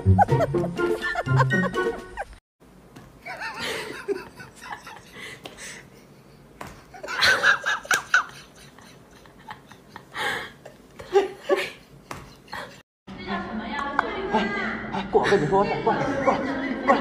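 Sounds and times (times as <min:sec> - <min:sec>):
person giggling: 0:00.0 - 0:02.4, 0:03.2 - 0:12.8.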